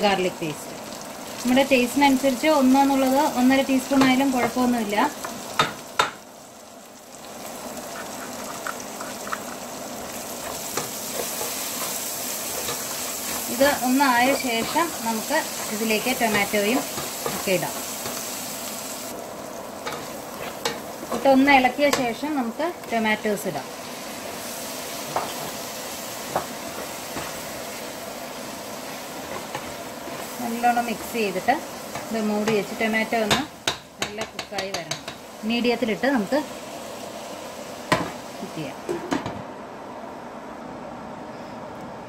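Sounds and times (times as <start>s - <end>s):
food sizzling in oil: 0.0s - 38.8s
spatula knocking pan: 3.9s - 6.2s, 31.9s - 35.3s
spoon tapping metal pot: 33.2s - 35.2s.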